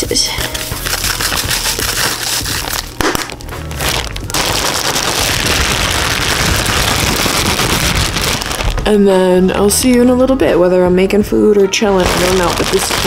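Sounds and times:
plastic bag crinkling: 0:00.4 - 0:09.0, 0:12.0 - 0:13.0.

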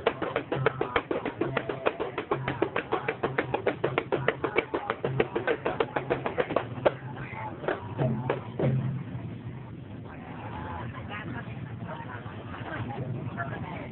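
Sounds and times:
fast percussion taps: 0:00.0 - 0:08.8.

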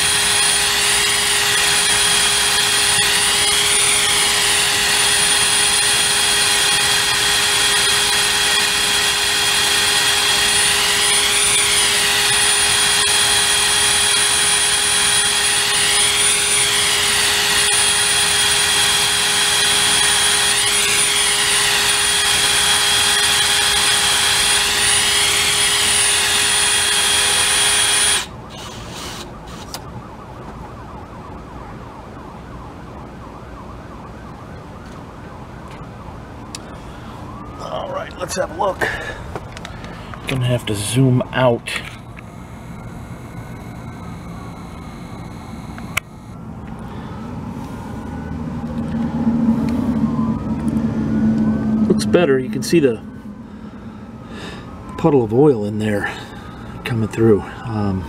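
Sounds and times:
cordless drill whining: 0:00.0 - 0:29.8.

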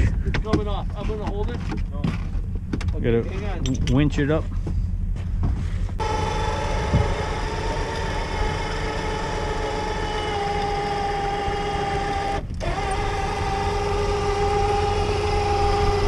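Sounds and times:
low rumble: 0:00.0 - 0:12.8
electric winch motor whining: 0:06.0 - 0:16.0.

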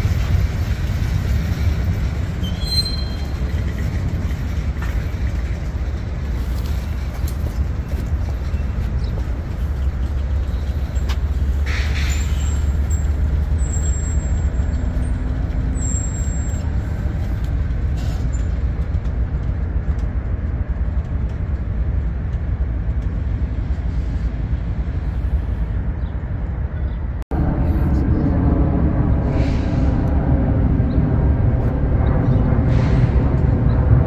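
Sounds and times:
train wheels rumbling on rail: 0:00.0 - 0:34.0
faint high squeal: 0:02.4 - 0:03.3.

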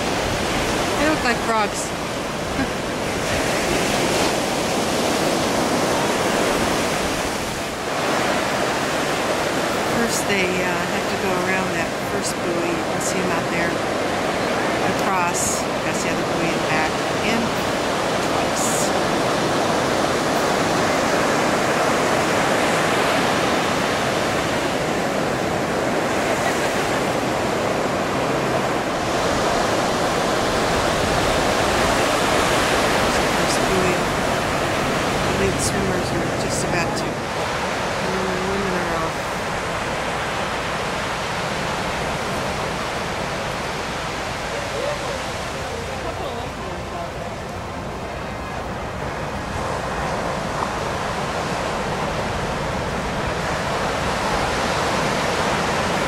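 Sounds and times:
ocean surf washing: 0:00.0 - 0:56.0.

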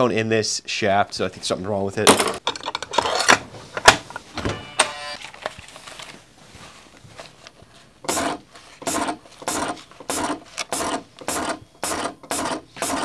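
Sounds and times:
brief whine: 0:04.4 - 0:05.2.

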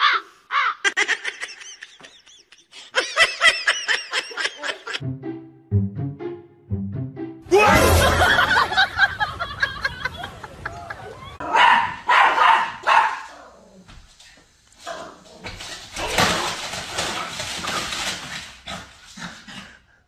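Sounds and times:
small dog barking: 0:11.4 - 0:13.4.

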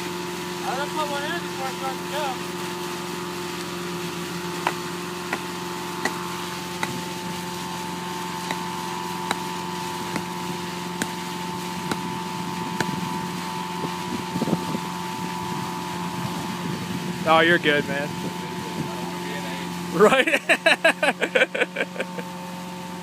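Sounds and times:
engine droning: 0:00.0 - 0:23.0
sledgehammer knocking wooden stakes: 0:04.6 - 0:06.2, 0:06.8 - 0:07.1, 0:08.4 - 0:12.2, 0:12.8 - 0:13.0.

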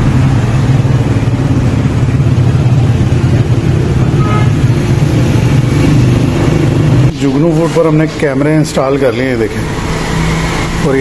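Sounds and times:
engine humming: 0:00.0 - 0:11.0
faint higher tone: 0:04.1 - 0:04.6.

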